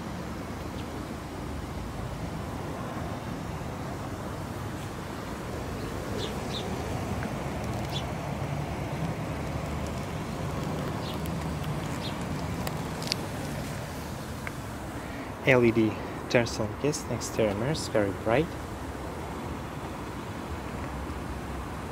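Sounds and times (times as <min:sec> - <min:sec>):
low vehicle rumble: 0:01.4 - 0:16.4.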